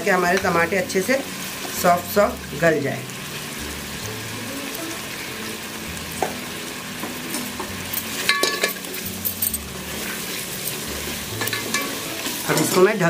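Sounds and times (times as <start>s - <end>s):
food sizzling in oil: 0.0s - 13.0s
spoon clinking against pot: 7.3s - 9.6s, 11.4s - 12.8s.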